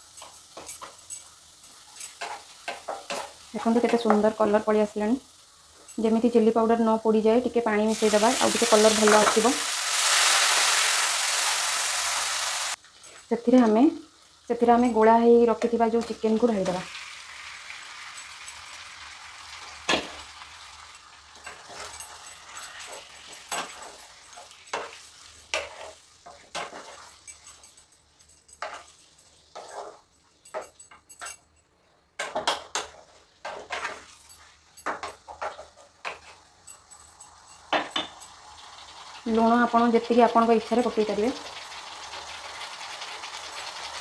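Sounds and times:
chicken sizzling in oil: 0.0s - 28.2s, 37.2s - 44.0s
spatula scraping and knocking pan: 1.7s - 4.3s, 21.4s - 27.7s, 28.6s - 30.9s, 32.2s - 36.5s.

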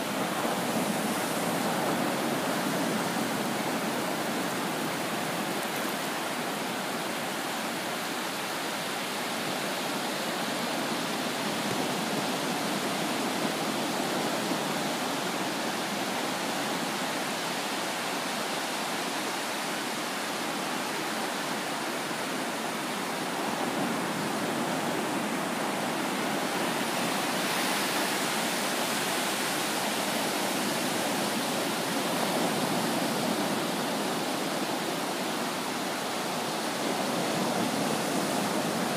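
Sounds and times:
ocean surf breaking: 0.0s - 7.8s, 21.8s - 38.9s.

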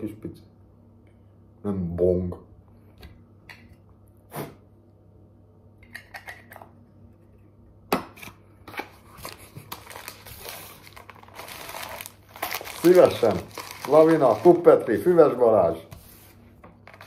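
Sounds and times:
packet crinkling and rustling: 8.8s - 15.6s.

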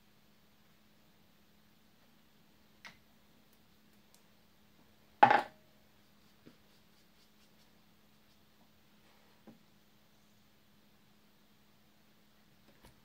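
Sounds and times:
loud knock on table: 5.2s - 5.5s.

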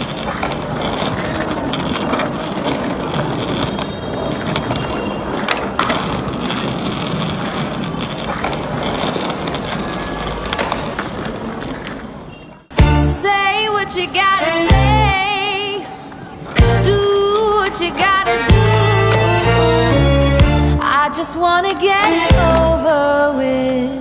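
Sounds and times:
skateboard clacks: 0.0s - 12.8s
skateboard wheels rolling on stone: 0.0s - 24.0s.

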